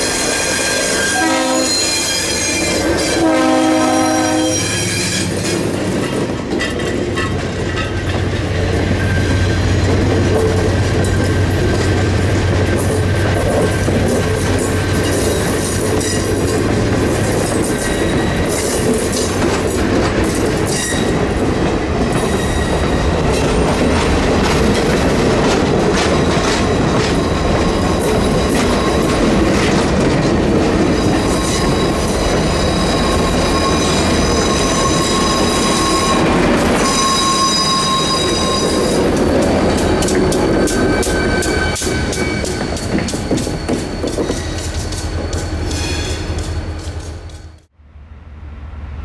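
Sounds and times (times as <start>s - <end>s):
high wheel squeal: 0.0s - 5.7s, 26.2s - 29.5s, 30.8s - 47.6s
diesel locomotive passing: 0.0s - 49.0s
train wheels clattering over rail joints: 4.9s - 34.7s, 38.6s - 47.6s.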